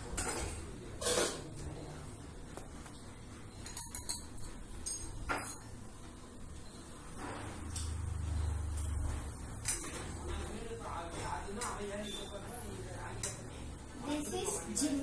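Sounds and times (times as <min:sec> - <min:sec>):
steel kitchenware scraping and clinking: 0:00.0 - 0:01.9, 0:03.5 - 0:05.9.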